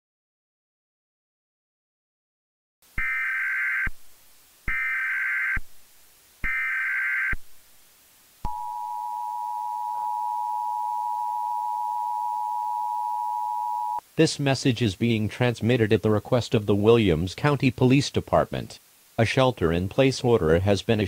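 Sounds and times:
two-tone alert signal: 0:08.5 - 0:14.0.

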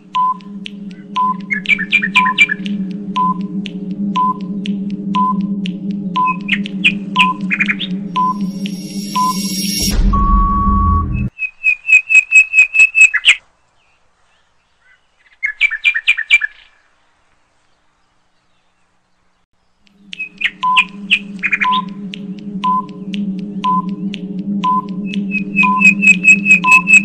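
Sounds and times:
droning music: 0:00.0 - 0:11.3, 0:19.8 - 0:27.0
bird-like chirping tweets: 0:00.2 - 0:03.4, 0:06.0 - 0:09.8, 0:19.6 - 0:27.0
short beep: 0:08.2 - 0:11.3.

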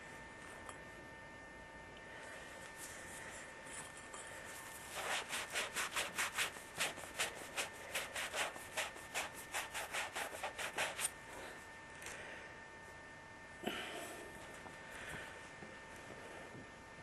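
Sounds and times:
emery cloth rasping on pipe: 0:03.8 - 0:11.2.

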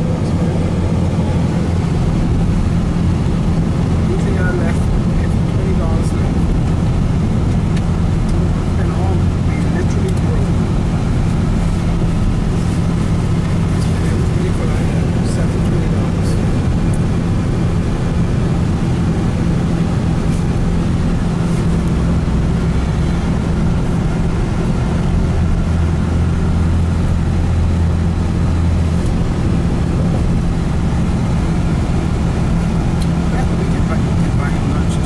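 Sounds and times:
deep engine hum: 0:00.0 - 0:35.0
vehicle engine and road noise: 0:00.0 - 0:35.0.

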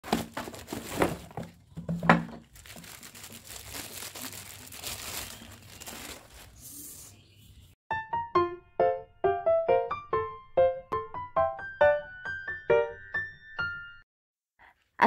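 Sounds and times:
plastic wrapping crinkling: 0:00.0 - 0:06.7.

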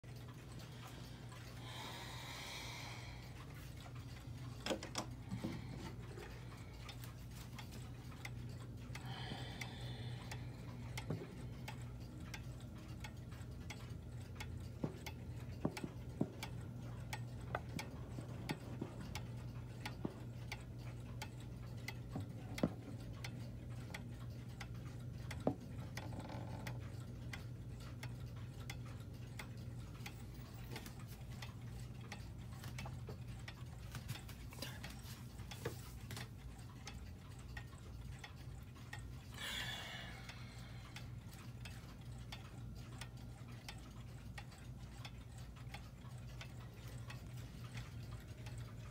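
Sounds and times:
wall clock ticking: 0:00.0 - 0:48.9.

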